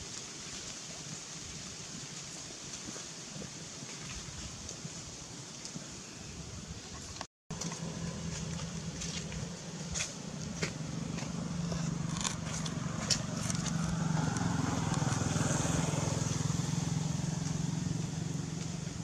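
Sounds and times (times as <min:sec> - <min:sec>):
motor engine running: 0:07.5 - 0:19.0.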